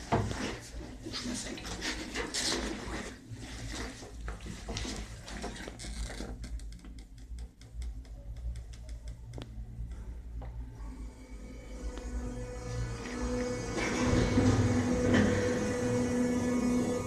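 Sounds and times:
gondola rumbling: 11.1s - 17.0s.

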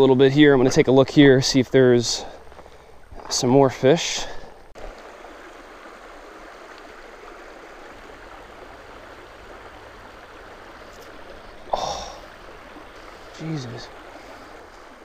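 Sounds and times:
river flowing over rocks: 4.8s - 15.0s.

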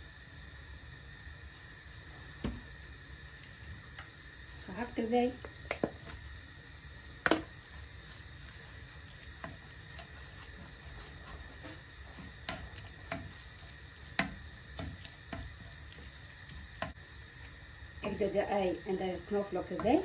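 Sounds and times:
meat sizzling in oil: 0.0s - 20.0s
spatula knocking and scraping pan: 7.2s - 7.6s, 9.2s - 16.0s.

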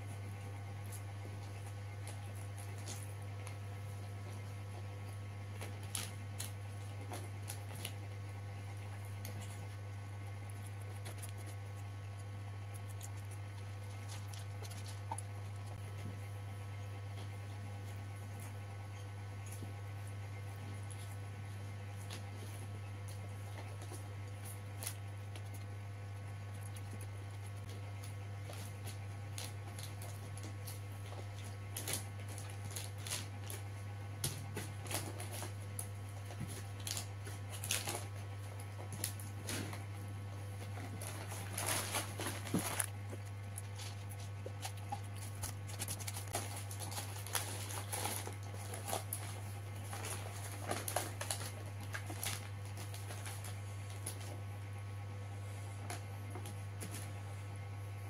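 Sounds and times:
steady low hum: 0.0s - 58.0s
wet chewing: 5.6s - 16.0s, 40.6s - 54.2s
paper wrapping crinkling: 26.5s - 39.9s, 40.6s - 54.4s.

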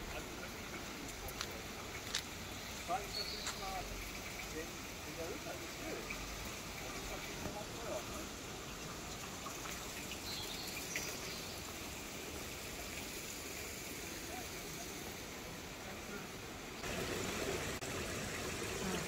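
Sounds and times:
water trickling in stream: 0.0s - 19.0s.

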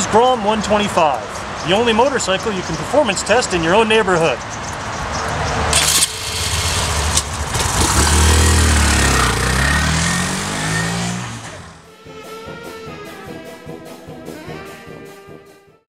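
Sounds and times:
small motorcycle engine accelerating: 5.7s - 11.8s
brass band music: 11.9s - 15.5s.

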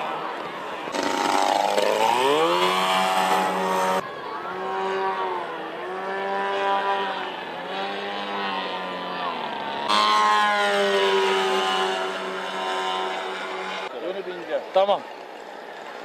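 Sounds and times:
model airplane engine buzzing: 0.9s - 4.0s, 4.6s - 13.9s.

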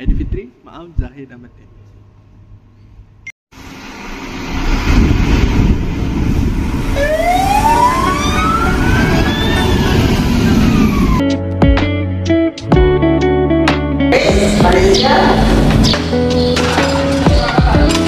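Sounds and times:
fire engine and road rumble: 3.6s - 11.2s
siren wailing: 6.8s - 11.3s
guitar music: 11.2s - 18.0s.

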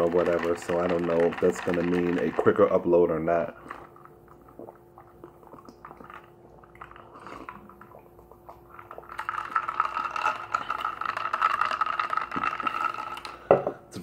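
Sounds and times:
sipping and swallowing: 0.0s - 13.5s
carbonated drink fizzing: 0.0s - 13.6s
wet mouth clicks: 3.6s - 9.5s.

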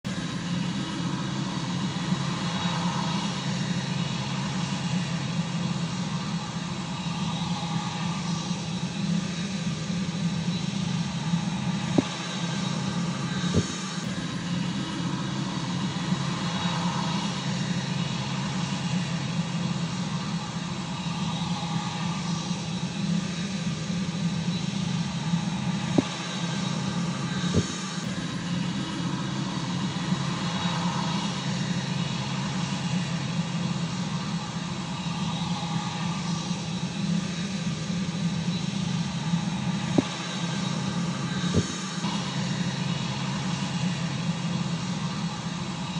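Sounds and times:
jet engines running: 0.1s - 45.9s.

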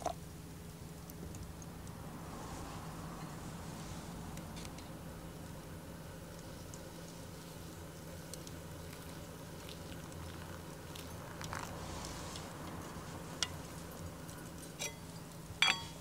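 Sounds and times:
low steady hum: 0.0s - 16.0s.

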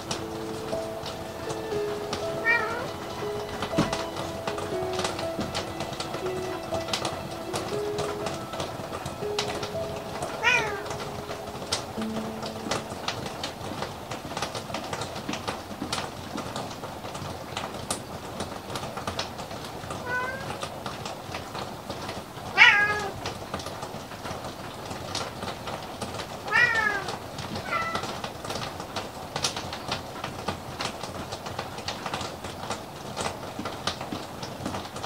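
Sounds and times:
small irregular clicks: 0.0s - 35.0s
cat meowing: 2.4s - 2.9s, 10.4s - 11.0s, 20.0s - 20.6s, 22.6s - 23.2s, 26.5s - 28.2s.

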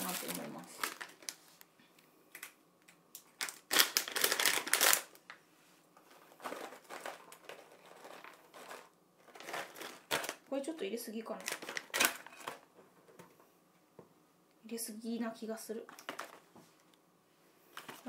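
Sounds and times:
plastic pouch crinkling: 0.0s - 1.7s, 3.2s - 5.4s, 6.1s - 10.5s, 11.3s - 12.6s.

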